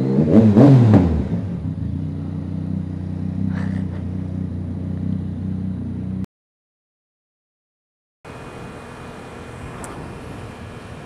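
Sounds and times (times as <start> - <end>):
motorcycle engine revving and idling: 0.0 - 6.3.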